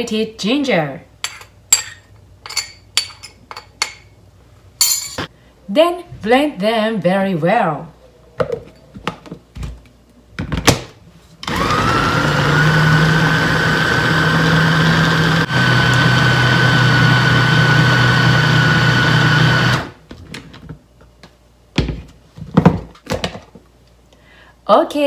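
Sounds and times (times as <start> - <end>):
food processor whining: 11.4 - 20.0.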